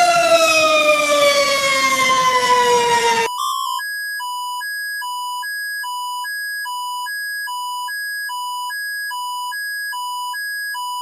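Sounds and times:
alternating two-tone alert beeps: 3.3 - 11.0.

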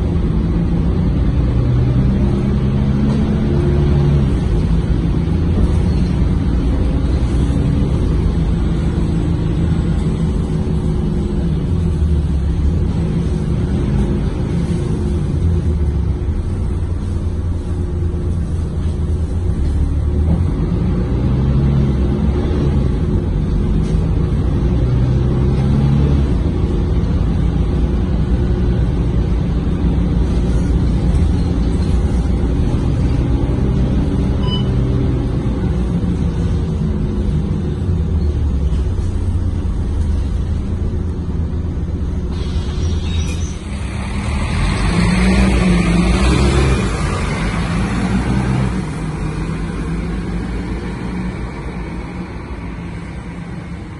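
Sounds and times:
bus engine and road noise: 0.0 - 53.9
bus air brake hiss: 42.3 - 43.9.

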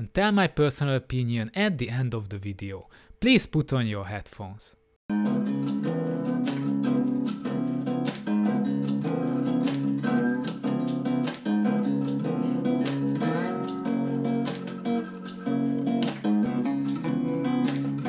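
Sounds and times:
strummed acoustic guitar music: 5.1 - 18.0.

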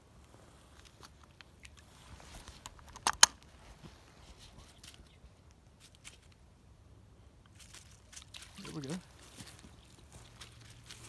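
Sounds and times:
sharp clicks: 2.6 - 3.5.

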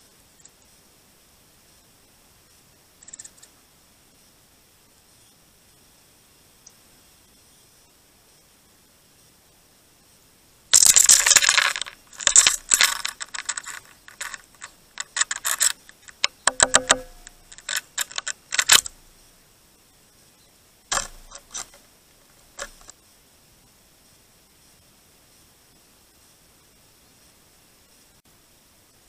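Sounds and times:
birds pecking and scrabbling: 10.7 - 19.3, 20.9 - 23.0.

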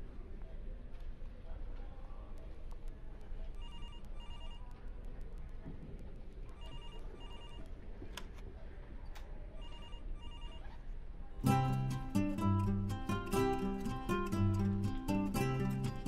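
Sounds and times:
telephone ringing: 3.6 - 4.7, 6.5 - 7.7, 9.6 - 10.7.

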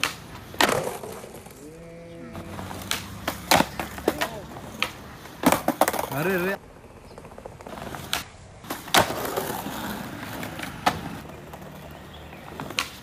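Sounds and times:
skateboard clacks: 0.0 - 1.6, 2.4 - 13.0
skateboard wheels rolling on tiles: 0.0 - 1.6, 2.3 - 13.0.

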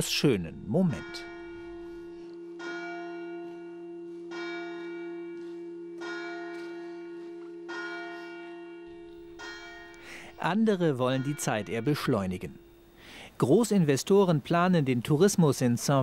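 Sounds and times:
church bell tolling: 0.0 - 13.0.

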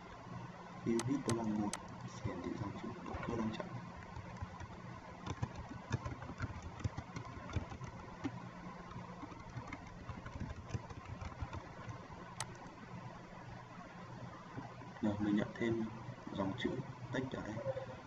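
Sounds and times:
low background hum: 0.0 - 18.0
computer keyboard typing: 0.9 - 12.8.

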